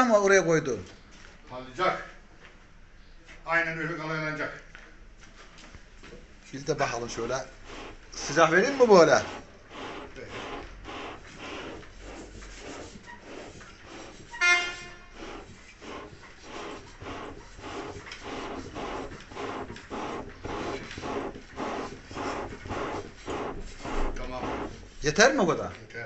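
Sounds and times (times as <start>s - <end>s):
bellows puffing air: 7.5s - 25.3s.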